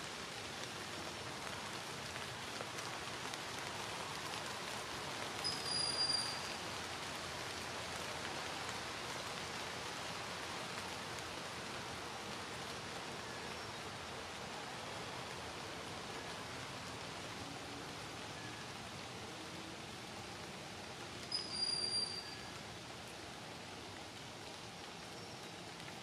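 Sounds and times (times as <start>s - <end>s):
outdoor background hiss: 0.0s - 26.0s.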